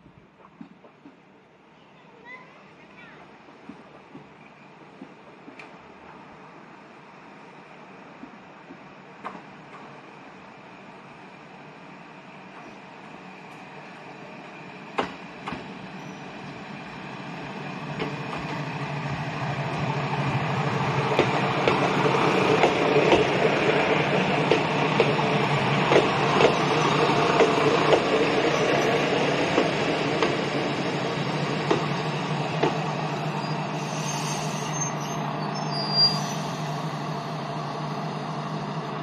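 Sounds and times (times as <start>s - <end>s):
diesel railcar engine humming: 1.2s - 39.0s
train wheels clicking over rail joints: 8.1s - 10.0s, 14.4s - 16.5s, 17.8s - 33.1s.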